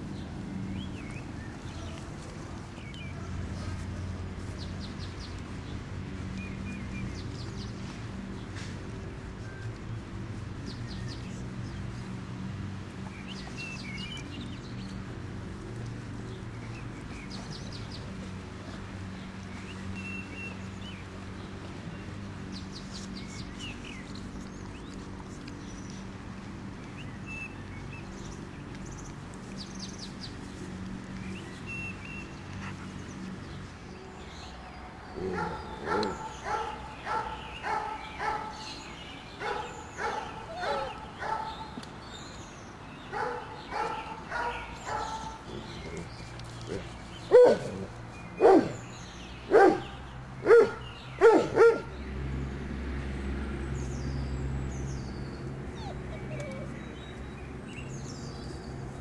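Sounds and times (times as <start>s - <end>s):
puppies barking: 35.2s - 38.6s, 39.4s - 41.8s, 43.1s - 46.1s, 46.7s - 48.8s, 49.5s - 51.9s, 55.7s - 56.8s.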